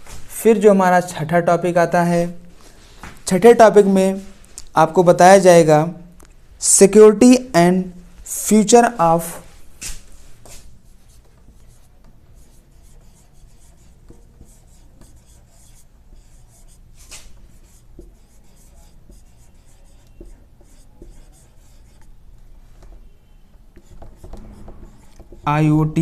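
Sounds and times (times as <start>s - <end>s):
marker squeaking on whiteboard: 7.9s - 26.0s.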